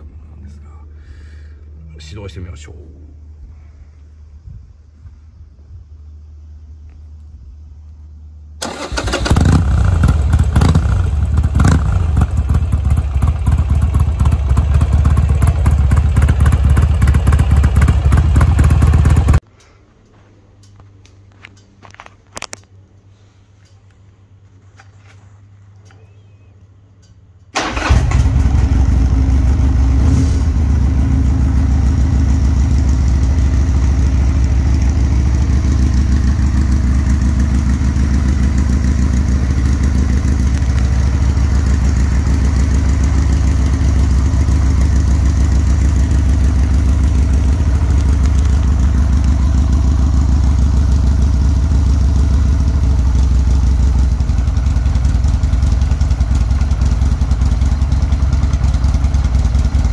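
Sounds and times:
motorcycle electric starter: 8.6s - 17.3s, 27.5s - 29.0s
motorcycle engine idling: 8.6s - 19.4s, 27.6s - 59.9s.

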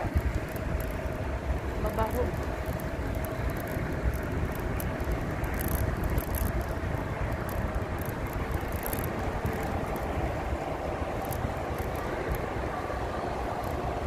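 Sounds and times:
thin steady whine: 0.0s - 14.0s
wind buffeting microphone: 0.0s - 14.0s
faint high ticks: 0.1s - 1.1s, 1.8s - 10.2s, 11.2s - 12.5s, 13.6s - 13.9s.

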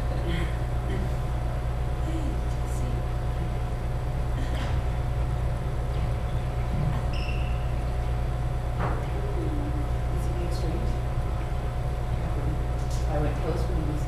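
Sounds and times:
low hum: 0.0s - 14.0s
shoe squeak on wooden floor: 7.1s - 7.8s.

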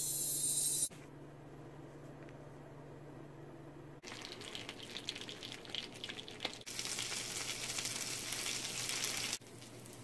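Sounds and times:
sandwich sizzling in a pan: 4.1s - 10.0s.

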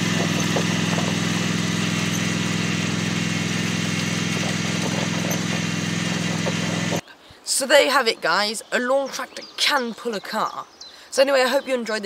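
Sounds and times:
lawn tractor engine running: 0.0s - 7.0s.

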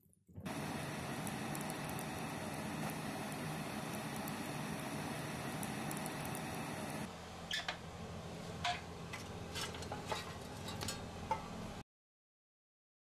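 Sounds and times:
fire crackling: 0.4s - 7.1s
fire rushing in boiler: 0.4s - 7.1s.

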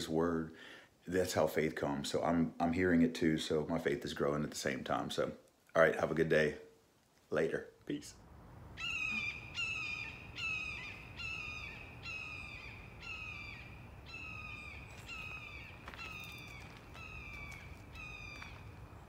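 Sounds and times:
bird of prey screaming: 8.8s - 18.5s.

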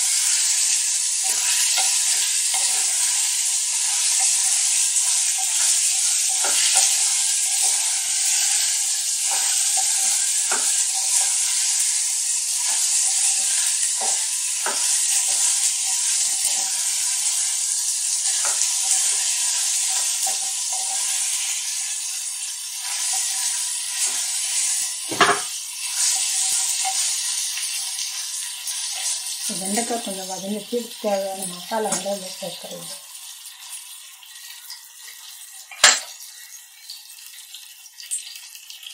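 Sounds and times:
okra sizzling in oil: 0.0s - 38.9s
wooden spatula scraping a pot: 0.1s - 12.0s, 12.6s - 17.5s.

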